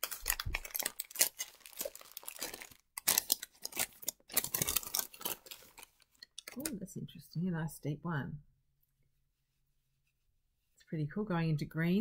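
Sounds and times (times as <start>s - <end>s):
paper crinkling and tearing: 0.0s - 6.7s.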